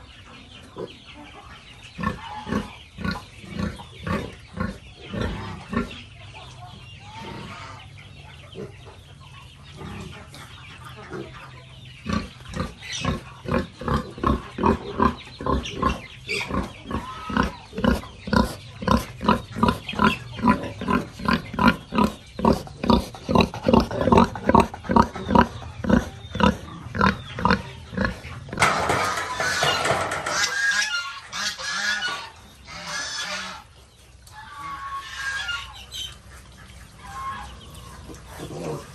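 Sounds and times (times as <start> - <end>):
pigs grunting: 2.0 - 6.1, 7.0 - 7.9, 9.7 - 10.3, 12.0 - 33.7, 37.0 - 38.9.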